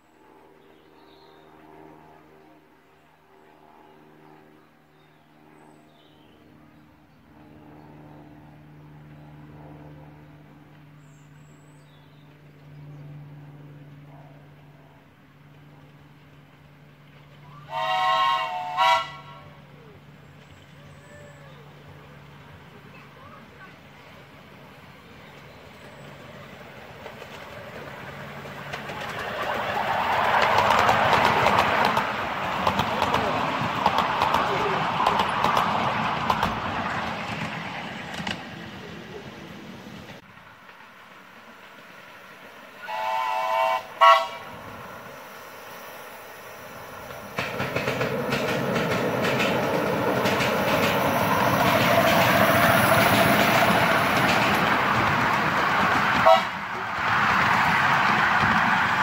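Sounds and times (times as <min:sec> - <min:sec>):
engine humming: 0:06.5 - 0:59.0
miniature train running on track: 0:13.7 - 0:59.0
birds chirping: 0:20.0 - 0:35.5.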